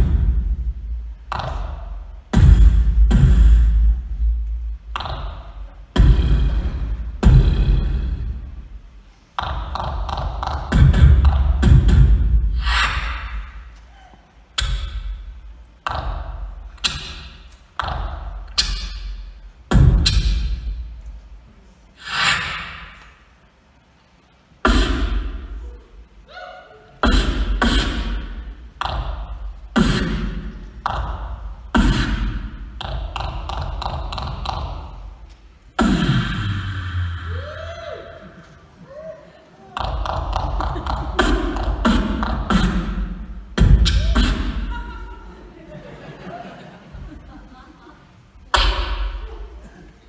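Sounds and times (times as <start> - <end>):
person beatboxing into a microphone: 27.0 - 34.7, 39.8 - 44.8.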